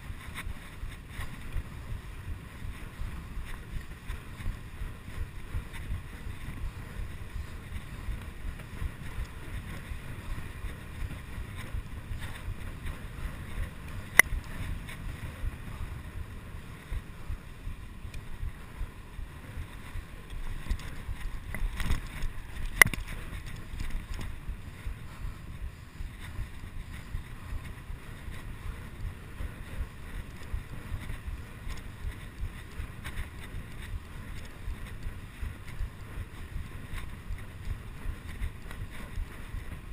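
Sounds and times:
bicycle tyre noise: 0.0s - 39.9s
wind buffeting microphone: 0.0s - 39.9s.

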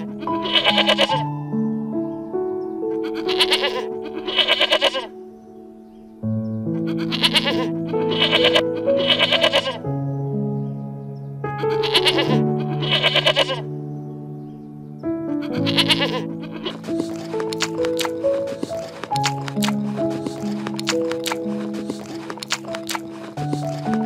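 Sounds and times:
animal quavering cries: 0.0s - 1.3s, 2.9s - 5.1s, 6.8s - 9.9s, 11.6s - 13.7s, 15.4s - 24.0s
soft background music: 0.0s - 24.0s.

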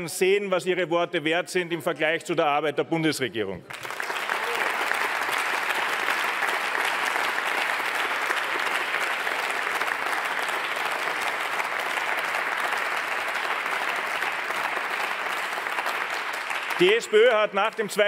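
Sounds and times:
crowd applauding: 3.7s - 18.0s.

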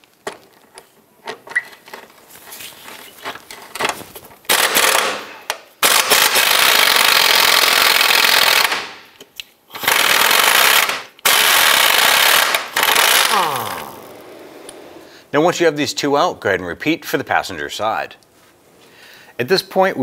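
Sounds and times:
impact wrench hammering: 9.8s - 13.8s.

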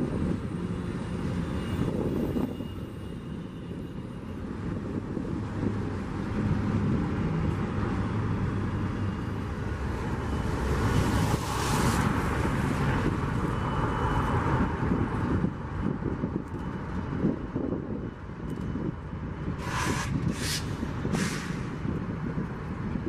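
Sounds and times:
diesel locomotives rumbling: 0.0s - 23.0s
hiss: 19.6s - 21.8s.

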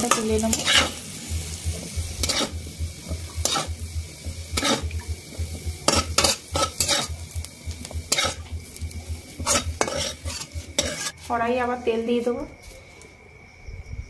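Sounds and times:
metal spatula scraping and clinking: 0.0s - 1.0s, 2.2s - 2.6s, 3.4s - 3.7s, 4.5s - 4.9s, 5.9s - 7.2s, 8.1s - 8.5s, 9.4s - 11.3s
hot oil sizzling: 0.0s - 13.0s.

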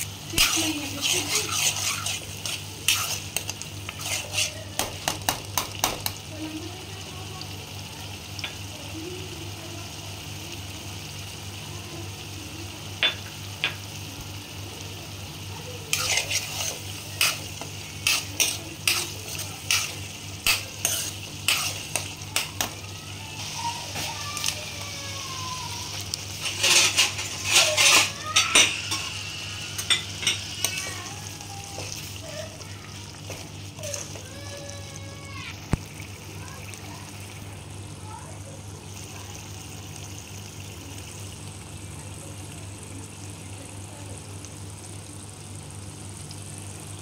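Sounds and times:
metal spoon scraping a pan: 0.0s - 6.0s, 15.9s - 22.8s, 25.9s - 31.1s
food sizzling in a frying pan: 0.0s - 47.0s
knocks of food stirred in pan: 0.0s - 47.0s.

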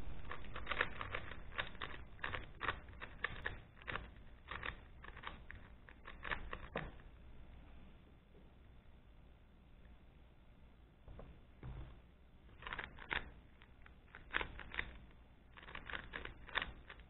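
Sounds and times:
puzzle cube plastic clacks: 0.1s - 7.0s, 12.5s - 17.0s.

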